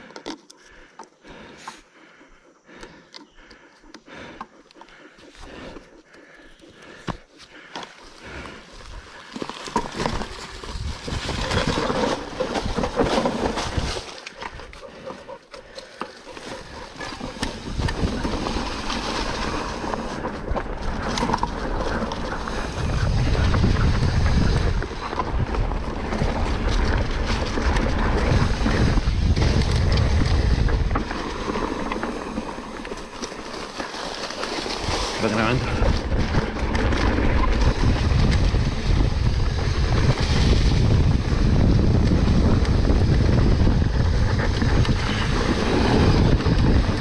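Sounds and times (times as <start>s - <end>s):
wind buffeting microphone: 16.4s - 33.8s, 34.7s - 47.0s.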